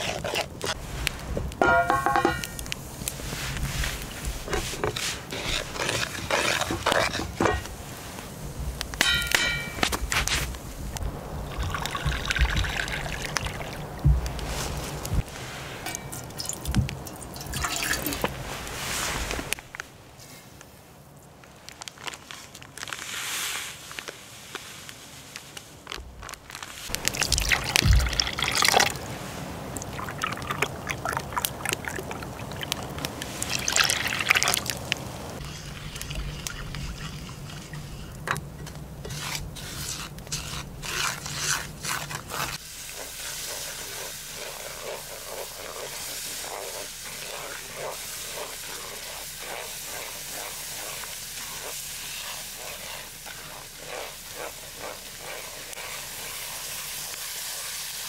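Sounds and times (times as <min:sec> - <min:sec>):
wooden spatula scraping frying pan: 0:00.0 - 0:00.9, 0:01.6 - 0:08.2, 0:35.4 - 0:57.8.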